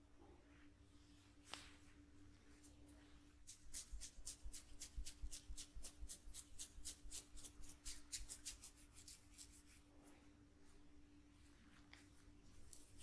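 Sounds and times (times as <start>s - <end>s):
fingers scratching through hair: 3.4s - 9.8s.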